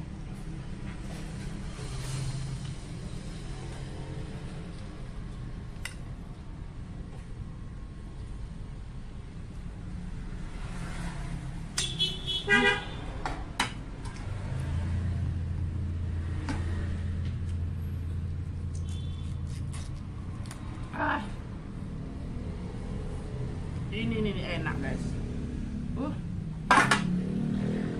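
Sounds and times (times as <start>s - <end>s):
vehicle engine humming: 0.0s - 27.9s
vehicle horn toot: 11.8s - 13.0s, 18.8s - 19.4s.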